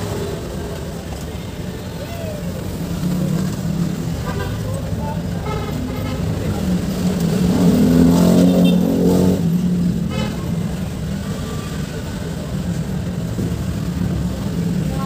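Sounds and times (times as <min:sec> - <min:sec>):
vehicle engine revving: 0:05.8 - 0:10.1.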